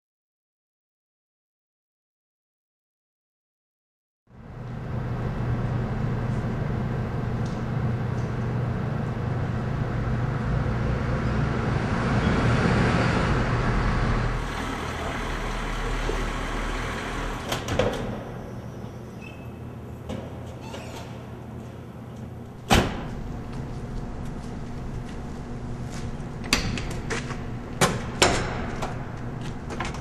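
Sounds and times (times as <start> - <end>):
van engine running: 4.5 - 17.7.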